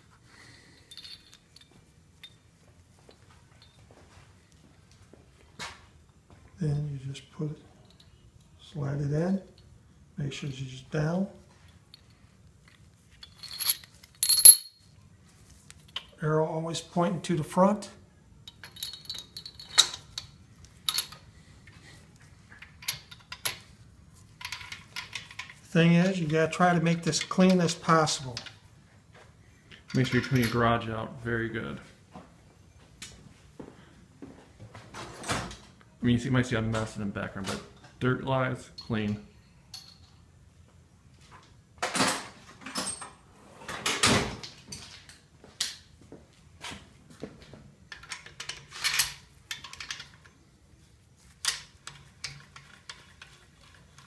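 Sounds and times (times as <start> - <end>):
light metal clicks and clinks: 0.7 - 2.5, 3.1 - 4.0, 13.2 - 14.8.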